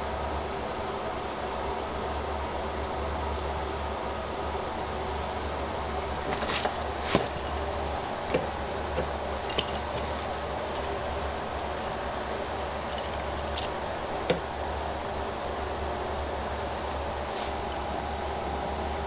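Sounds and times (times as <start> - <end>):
metal blade clinking: 6.2 - 14.5.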